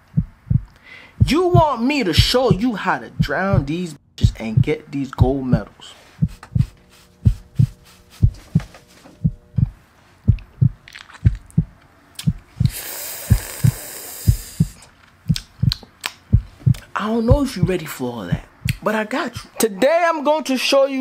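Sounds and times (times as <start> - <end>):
heartbeat thumps: 0.0 - 18.8
faint hum: 0.0 - 19.8
hiss: 12.6 - 14.8.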